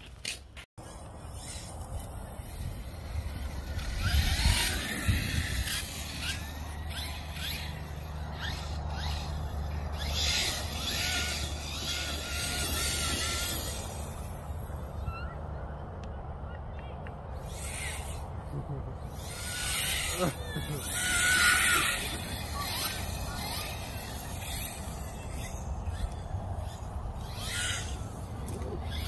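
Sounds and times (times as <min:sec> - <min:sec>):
electric motor whining: 0:00.8 - 0:15.0, 0:19.0 - 0:29.0.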